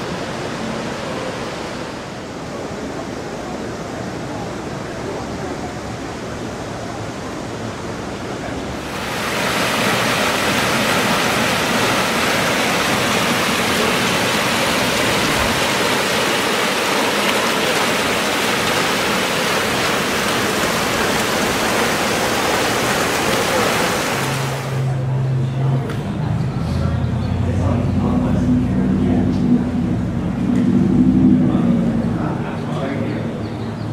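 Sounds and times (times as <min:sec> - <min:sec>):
fountain water splashing into pool: 0:08.8 - 0:25.0.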